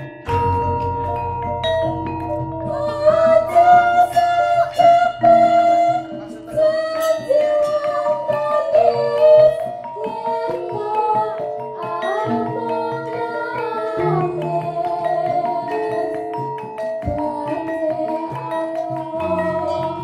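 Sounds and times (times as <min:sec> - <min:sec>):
metallophones ringing: 0:00.0 - 0:20.0
woman singing solo: 0:02.7 - 0:16.3.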